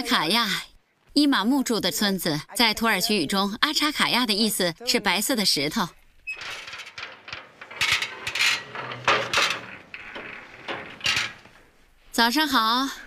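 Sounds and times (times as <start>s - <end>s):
iron gate rattling: 6.2s - 12.1s
gate latch clanking: 6.3s - 11.9s.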